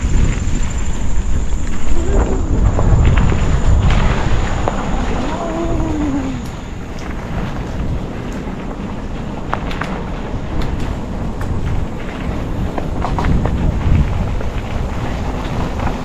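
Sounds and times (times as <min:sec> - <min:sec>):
bike rolling on dirt trail: 0:00.0 - 0:16.0
wind buffeting microphone: 0:00.0 - 0:16.0.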